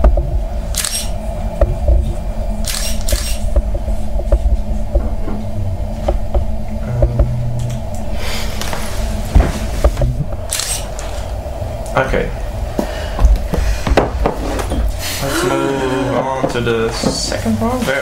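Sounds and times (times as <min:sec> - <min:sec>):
room hum: 0:00.0 - 0:18.0
camera shutter firing: 0:00.7 - 0:01.2, 0:02.6 - 0:03.4, 0:10.5 - 0:10.9.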